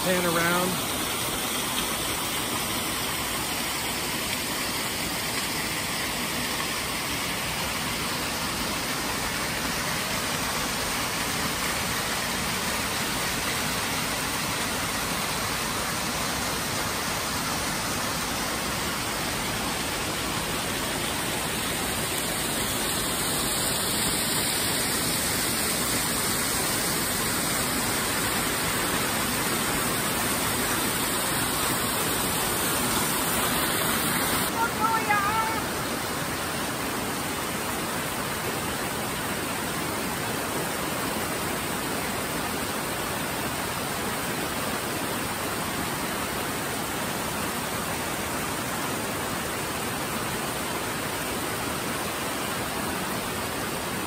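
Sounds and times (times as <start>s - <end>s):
waterfall rushing over rocks: 0.0s - 54.0s.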